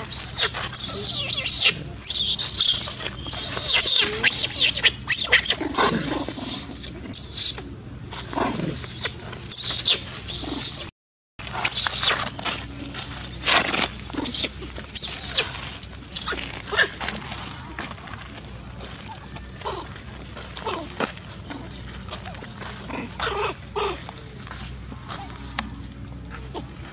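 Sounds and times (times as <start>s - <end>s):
baby monkey screaming: 0.0s - 10.9s, 11.5s - 12.2s, 14.2s - 15.5s, 16.1s - 16.9s.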